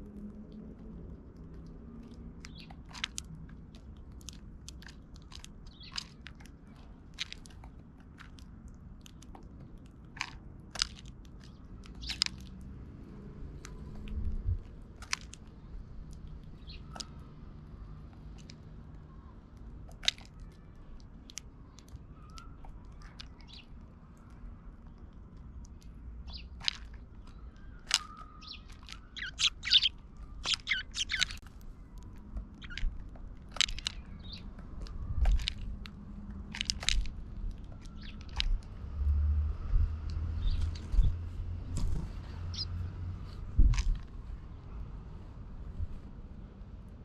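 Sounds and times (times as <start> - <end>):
beaks tapping seed and wood: 0.0 - 38.9, 40.0 - 44.2
sparrows chirping: 2.0 - 2.9, 3.8 - 7.1, 11.3 - 38.9, 40.2 - 43.5.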